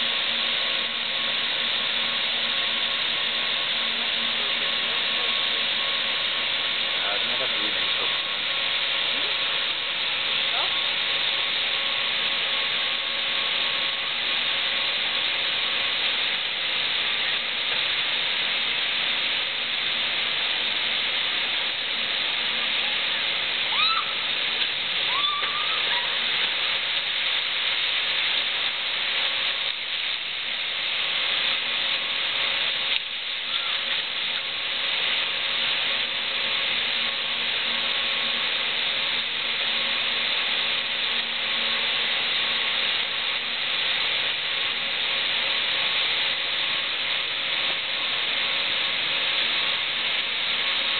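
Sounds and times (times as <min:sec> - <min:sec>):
faint constant hum: 0:00.0 - 0:50.9
water rushing through channel: 0:00.0 - 0:50.9
short high-pitched calls: 0:23.7 - 0:24.2, 0:25.1 - 0:26.2, 0:33.4 - 0:33.9.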